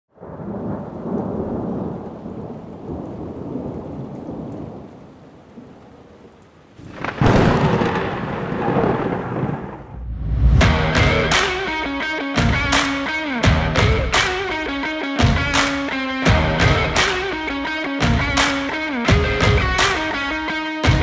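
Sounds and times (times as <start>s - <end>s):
steady rain: 0.1s - 10.0s
loud thunderclap: 0.2s - 4.9s, 6.8s - 11.6s
rumbling thunder: 0.2s - 4.9s, 6.8s - 11.3s.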